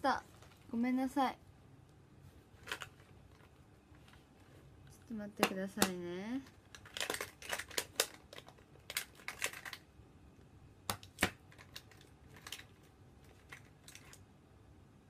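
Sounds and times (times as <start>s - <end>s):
small objects clicking and tapping: 5.4s - 9.9s, 10.9s - 14.2s.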